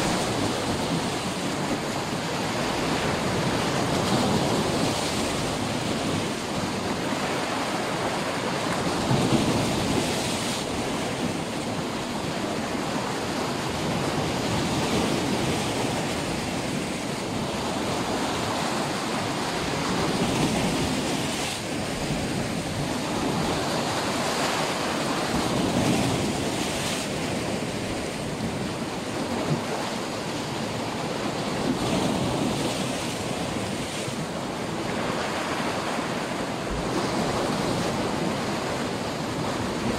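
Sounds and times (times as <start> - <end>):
waves breaking: 0.0 - 39.9.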